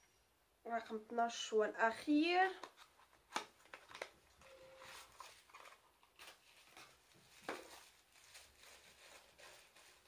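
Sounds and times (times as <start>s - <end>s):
gift wrapping crinkling: 2.5s - 10.0s.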